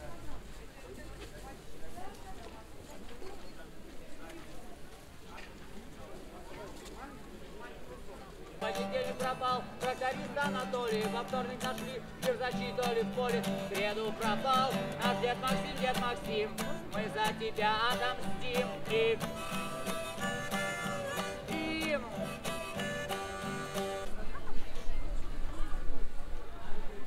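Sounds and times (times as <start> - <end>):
man singing: 8.6 - 24.0
acoustic guitar strumming: 8.6 - 24.1.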